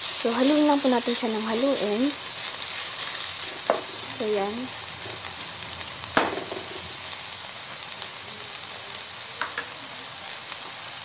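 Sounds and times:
vegetables sizzling in oil: 0.0s - 11.0s
knock against pan: 3.7s - 3.9s, 6.2s - 6.8s, 9.4s - 9.7s.

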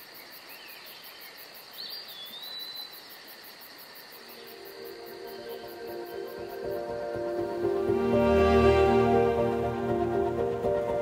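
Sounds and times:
insects chirping: 0.0s - 11.0s
soft music: 4.4s - 11.0s.

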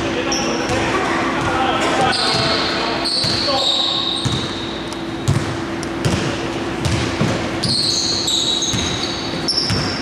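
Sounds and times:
basketball dribbled on wooden court: 4.2s - 4.6s, 5.2s - 7.9s, 8.6s - 10.0s.

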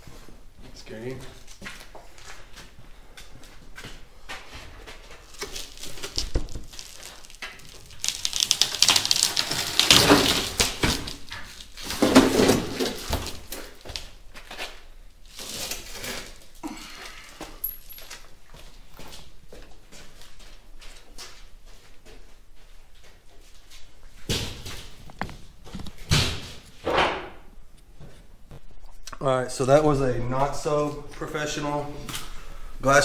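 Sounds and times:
glass crackling and crunching: 5.2s - 12.0s.

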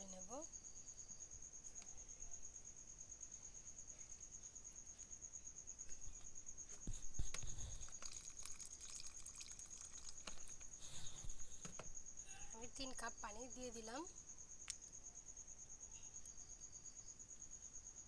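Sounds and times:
spoon stirring liquid in pot: 7.2s - 11.5s.

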